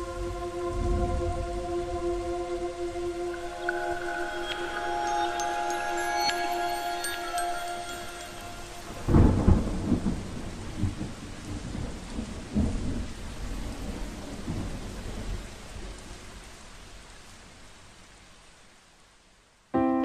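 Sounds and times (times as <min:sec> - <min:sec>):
rolling thunder rumbles: 0:00.0 - 0:03.6, 0:08.8 - 0:16.1
rain hiss: 0:00.0 - 0:20.0
thunderclap: 0:08.9 - 0:15.5.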